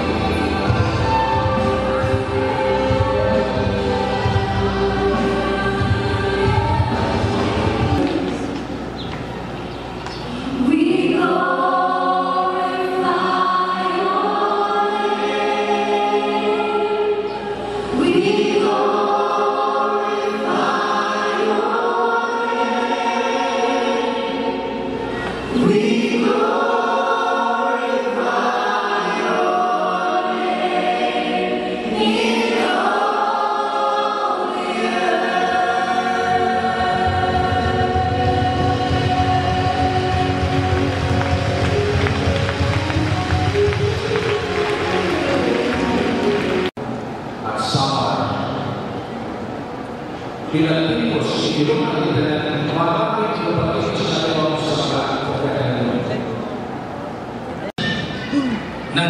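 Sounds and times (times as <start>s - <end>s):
band and crowd singing: 0.0s - 8.7s, 10.4s - 42.8s.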